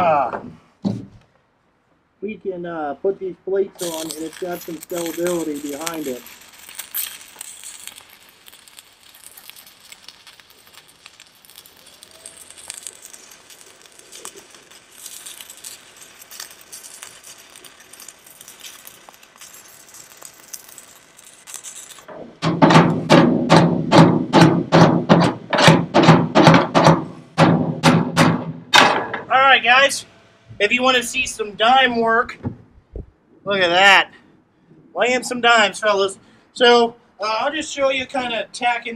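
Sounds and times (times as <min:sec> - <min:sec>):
welding arc crackling: 0:03.8 - 0:26.9
hammer striking steel plate: 0:22.4 - 0:29.3.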